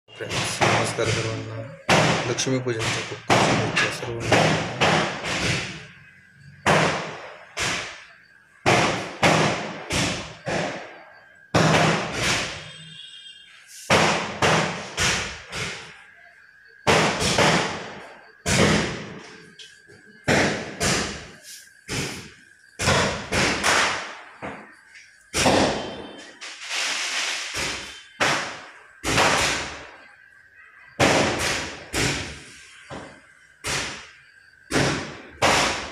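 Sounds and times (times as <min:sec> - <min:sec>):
firecrackers banging: 0:06.6 - 0:12.8, 0:13.7 - 0:16.0, 0:16.8 - 0:19.4, 0:20.2 - 0:29.9, 0:31.0 - 0:32.7.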